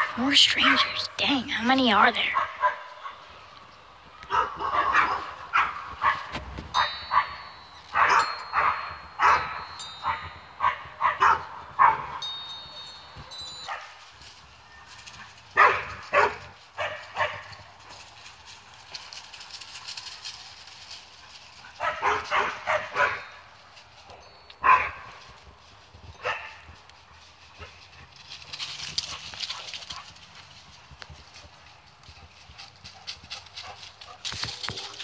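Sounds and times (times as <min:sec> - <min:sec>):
dogs barking: 0:02.2 - 0:03.3, 0:04.2 - 0:14.0, 0:15.2 - 0:17.7, 0:21.6 - 0:23.4, 0:24.6 - 0:25.2, 0:26.2 - 0:26.8.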